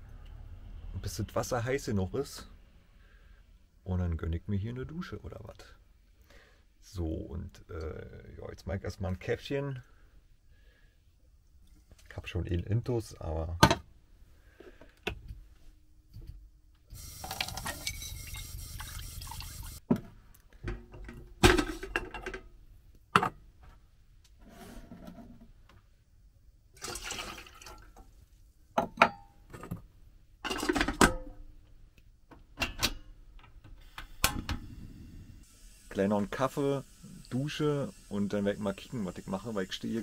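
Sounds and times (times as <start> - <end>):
water running: 17.0 - 19.8, 26.8 - 28.2, 35.4 - 40.0.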